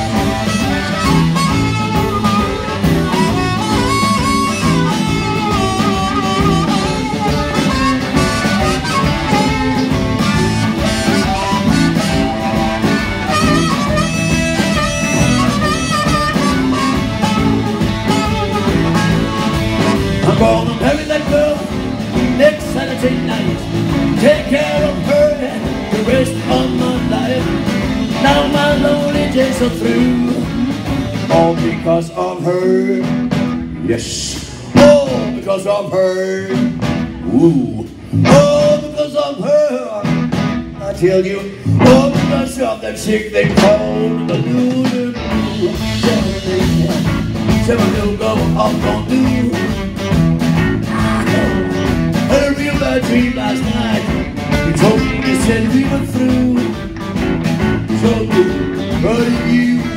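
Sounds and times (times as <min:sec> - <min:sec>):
harmonica solo: 0:00.0 - 0:22.2
bass: 0:00.0 - 0:59.9
drums: 0:00.0 - 0:59.9
electric guitar: 0:00.0 - 0:59.9.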